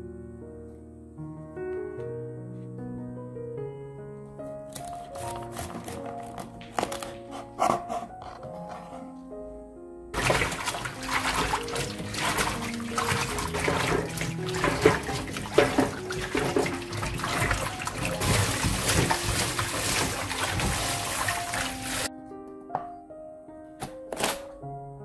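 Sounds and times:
tap water splashing into metal bowl: 10.2 - 22.1
vegetables rubbed by hand: 14.8 - 22.1.

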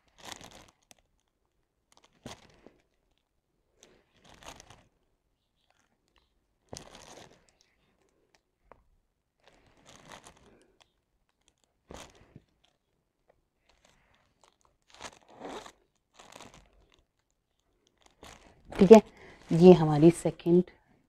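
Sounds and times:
plastic sheet crinkling: 0.0 - 5.0, 5.6 - 7.8, 9.4 - 13.0, 13.6 - 19.8.

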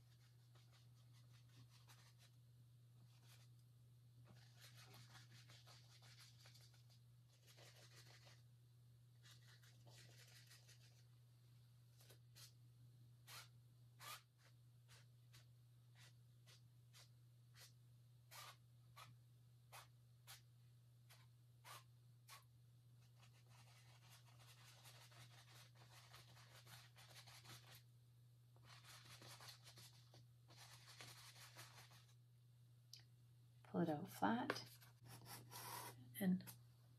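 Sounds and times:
paintbrush scrubbing on canvas: 4.3 - 8.4, 28.6 - 32.2, 34.6 - 36.0.

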